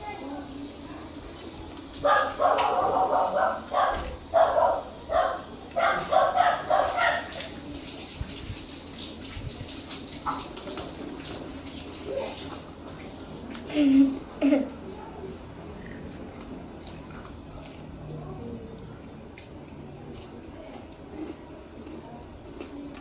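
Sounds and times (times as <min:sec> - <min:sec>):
dog barking rapidly: 0:02.0 - 0:07.3.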